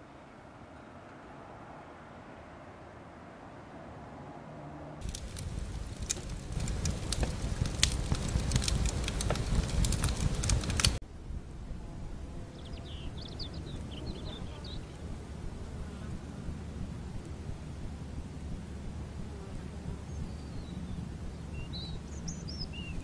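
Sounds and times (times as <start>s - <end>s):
outdoor ambience: 0.0s - 23.0s
fire crackling and popping: 5.0s - 11.0s
bird chirping: 12.6s - 15.0s, 20.0s - 23.0s.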